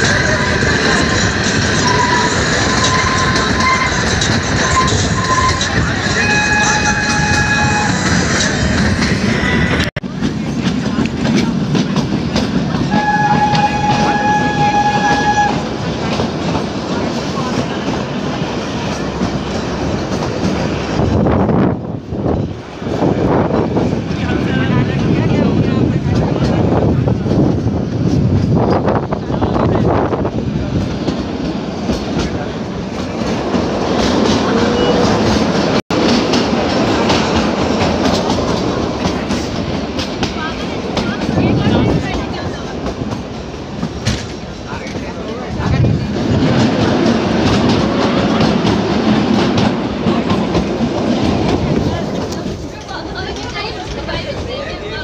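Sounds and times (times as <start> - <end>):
rail clatter: 0.0 - 55.0
train wheels rumbling on track: 0.0 - 55.0
train horn blast: 4.8 - 8.1, 12.9 - 15.7.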